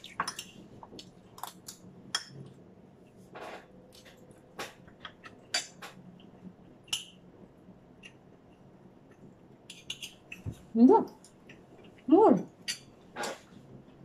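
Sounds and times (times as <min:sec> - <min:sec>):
spoons clinking against bowls: 0:09.7 - 0:10.5, 0:12.4 - 0:13.0.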